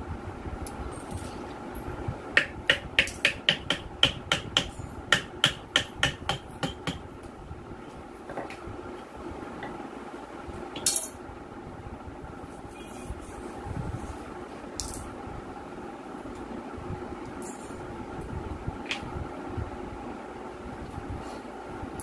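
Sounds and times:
hammer tapping on metal: 2.4 - 7.1.

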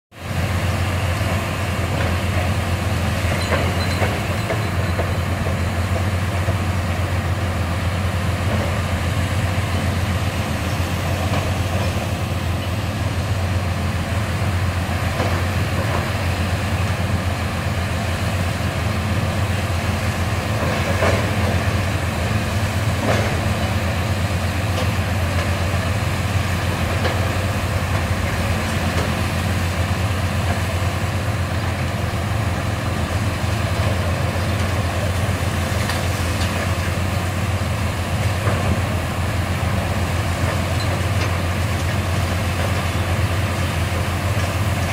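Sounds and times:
excavator diesel engines running: 0.2 - 44.9.

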